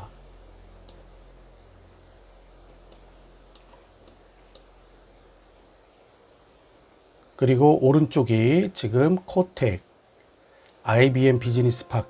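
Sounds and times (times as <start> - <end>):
faint hiss: 0.0 - 12.0
low steady hum: 0.0 - 12.0
faint sharp clicks: 0.8 - 1.0, 2.8 - 4.7.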